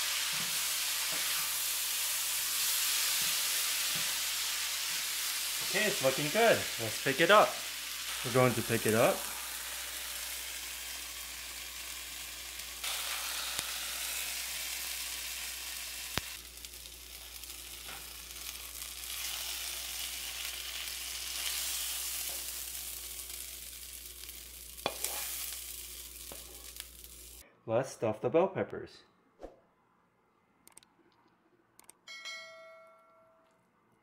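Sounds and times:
food sizzling in a pan: 0:00.0 - 0:27.4
sharp clicks: 0:30.6 - 0:32.0.

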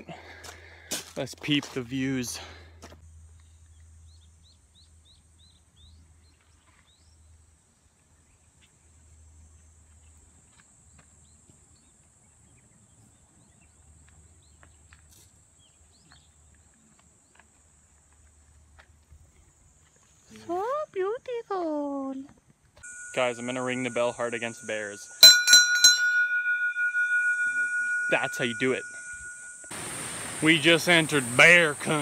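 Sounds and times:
bird chirping: 0:22.8 - 0:30.7
high insect drone: 0:22.9 - 0:25.2, 0:26.3 - 0:32.0.

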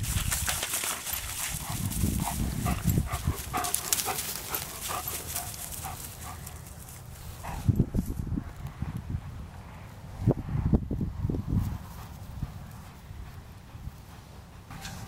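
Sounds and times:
wind rumble on microphone: 0:00.0 - 0:04.2, 0:07.1 - 0:15.0
dry grass rustling: 0:00.0 - 0:08.8
dog panting: 0:01.0 - 0:07.9, 0:11.9 - 0:14.9.

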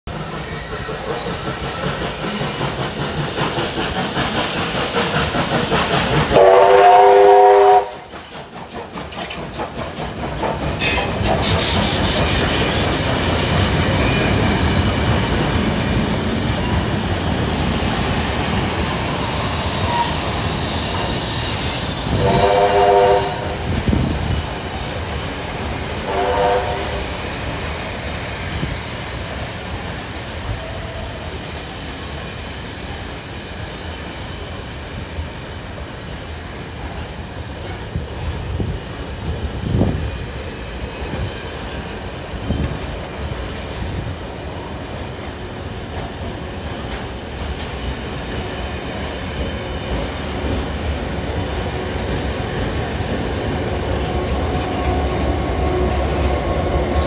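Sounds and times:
train rumbling: 0:00.0 - 0:57.0
steam locomotive hiss: 0:00.1 - 0:57.0
train wheels clattering and squealing: 0:00.1 - 0:57.0
train horn chord: 0:06.3 - 0:08.1, 0:22.2 - 0:23.5, 0:26.0 - 0:27.2.

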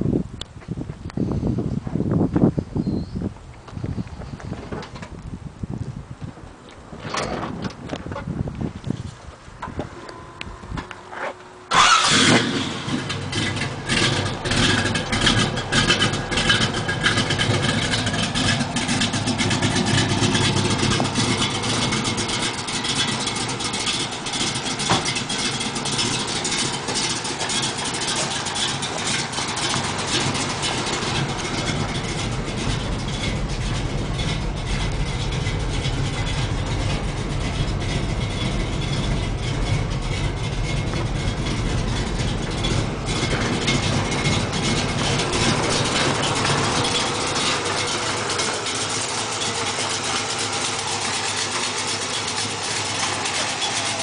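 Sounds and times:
car engine idling: 0:03.3 - 0:54.0.

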